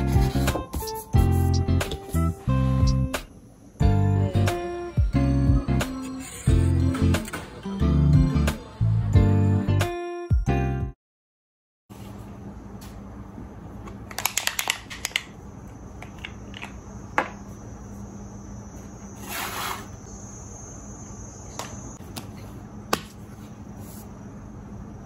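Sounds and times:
small items clicking on desk: 14.1 - 15.4.

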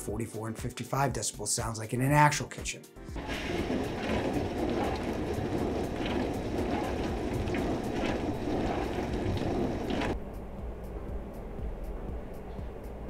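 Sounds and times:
dishwasher water spraying: 3.1 - 10.2.

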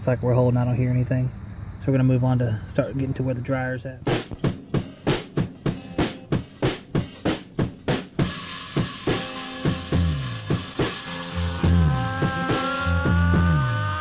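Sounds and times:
steady drum beat: 2.9 - 14.0
sustained higher instruments: 8.2 - 14.0
sliding bass line: 9.0 - 14.0.

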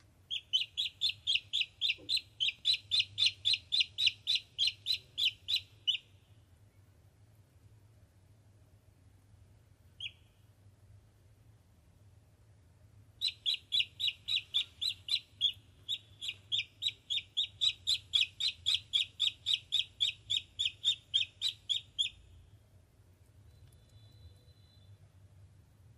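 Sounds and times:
duckling peeping: 0.3 - 6.3, 10.0 - 10.4, 13.2 - 22.4.

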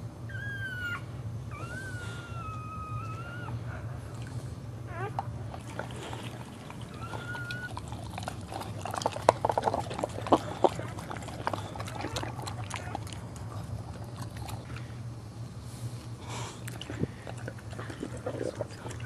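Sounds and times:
puppy squeak: 0.3 - 3.6, 4.9 - 5.2
dog licking wet slurping: 5.5 - 14.9, 16.6 - 19.0.

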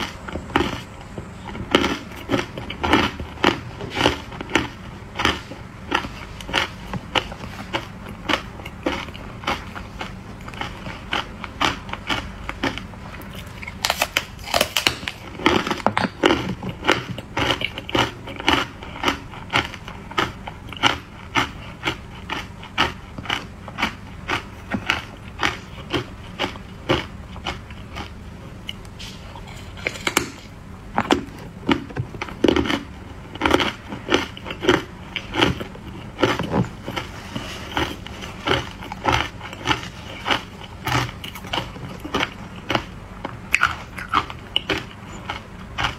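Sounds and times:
ice crunching between teeth: 1.7 - 28.2.

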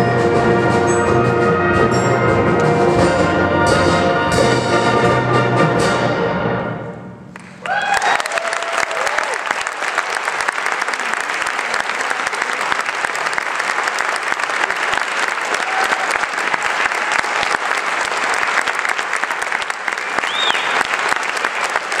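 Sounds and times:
audience applauding: 7.3 - 22.0.

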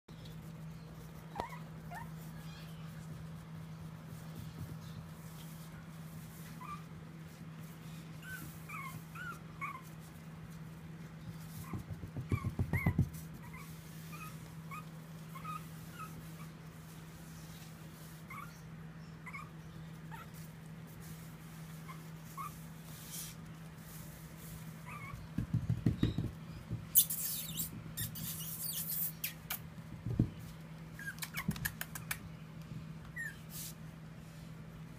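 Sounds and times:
puppy whimpering squeaks: 1.3 - 2.7, 6.6 - 6.9, 8.2 - 10.0, 11.6 - 16.2, 18.3 - 20.4, 21.8 - 22.6, 24.8 - 25.3, 26.0 - 29.7, 31.0 - 32.1, 33.1 - 33.5.

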